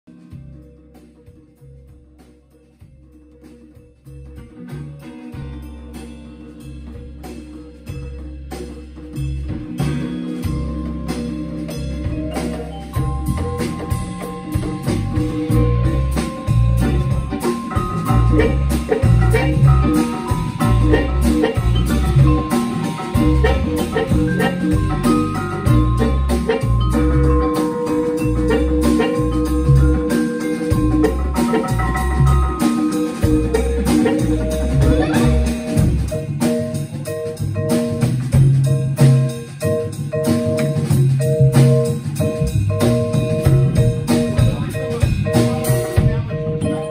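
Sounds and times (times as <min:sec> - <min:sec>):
drums: 0:00.0 - 0:46.9
hand percussion: 0:00.1 - 0:46.9
upright bass notes: 0:00.1 - 0:46.9
vibraphone struck with mallets: 0:00.1 - 0:46.9
electric guitar: 0:09.6 - 0:46.9
harmonica: 0:12.9 - 0:36.0.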